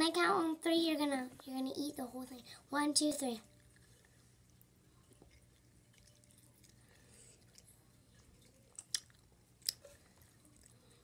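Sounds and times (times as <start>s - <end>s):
faint chewing: 3.4s - 11.0s.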